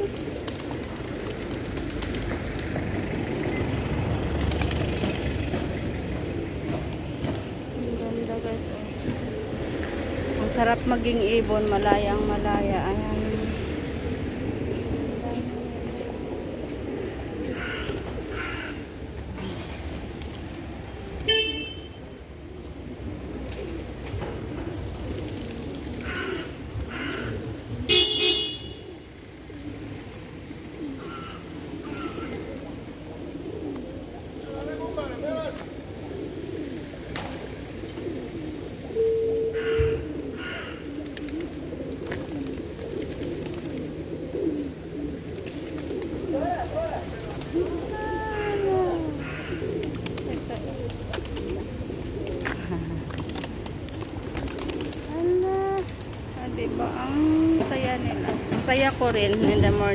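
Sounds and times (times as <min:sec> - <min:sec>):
pigeon wing flaps: 0:00.0 - 0:05.8, 0:17.5 - 0:21.3, 0:22.7 - 0:26.5, 0:40.2 - 0:44.1, 0:45.2 - 0:48.6, 0:49.3 - 0:56.4
pigeons cooing: 0:00.0 - 0:59.9
car horn toots: 0:21.3 - 0:21.9, 0:27.9 - 0:28.8.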